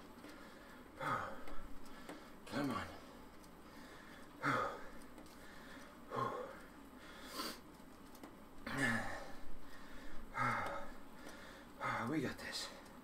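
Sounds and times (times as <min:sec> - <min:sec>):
man breathing hard: 0:00.2 - 0:02.4, 0:03.6 - 0:07.7, 0:08.7 - 0:12.1
sharp breath through nose: 0:07.0 - 0:07.6.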